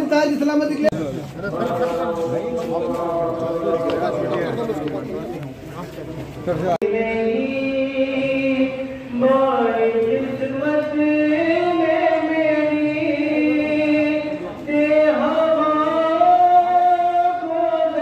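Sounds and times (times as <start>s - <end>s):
person chanting: 1.5s - 4.9s, 6.8s - 18.0s.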